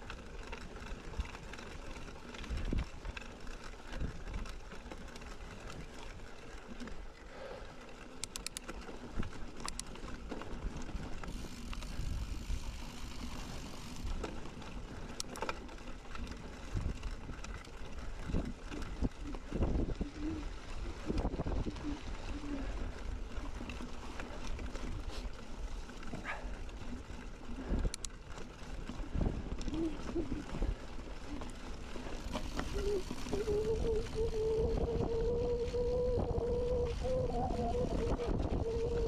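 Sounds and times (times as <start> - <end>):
bike tyres rolling over rough ground: 0.0 - 39.0
sharp clicks: 8.2 - 8.7.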